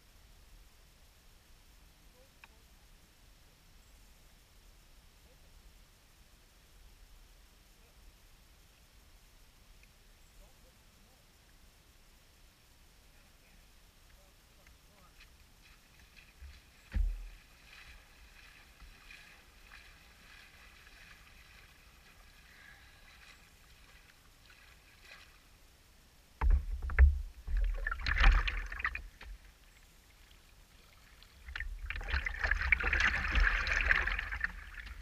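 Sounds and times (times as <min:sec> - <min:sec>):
water lapping against boat hull: 0:15.6 - 0:25.5, 0:26.4 - 0:35.0
person wading: 0:15.6 - 0:25.6, 0:27.3 - 0:29.5, 0:30.1 - 0:35.0.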